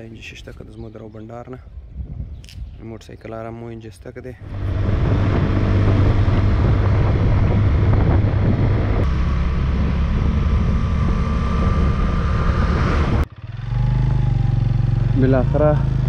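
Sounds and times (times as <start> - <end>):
wind rushing over microphone: 1.6 - 3.0, 4.4 - 13.3
motorcycle engine running: 4.4 - 16.0
thin steady whine: 4.5 - 13.3.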